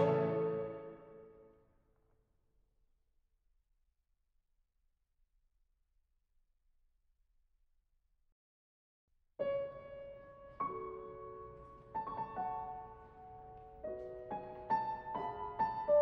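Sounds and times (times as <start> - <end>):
soft slow piano music: 0.0 - 1.4, 9.4 - 16.0.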